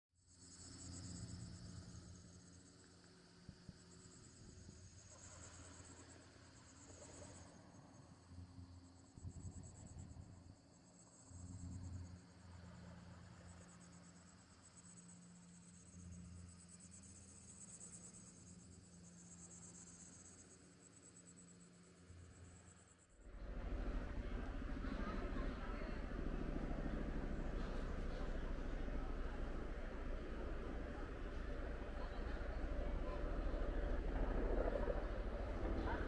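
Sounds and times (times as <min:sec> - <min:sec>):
low steady hum: 0:21.2 - 0:36.0.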